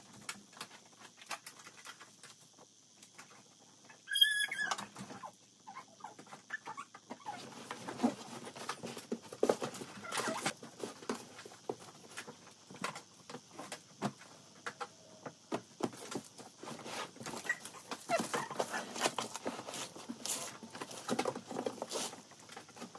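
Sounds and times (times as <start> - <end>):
cardboard rustling: 16.6 - 22.9.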